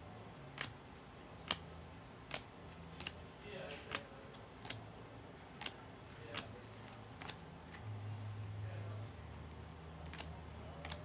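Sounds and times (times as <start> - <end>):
trading cards clicking: 0.5 - 0.8, 1.4 - 3.2, 3.8 - 4.8, 5.6 - 7.8, 10.1 - 11.0.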